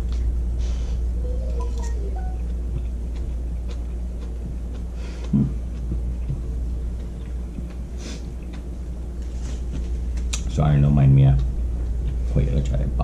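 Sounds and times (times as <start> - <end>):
low hum: 0.0 - 13.0
man chewing food: 1.7 - 10.5.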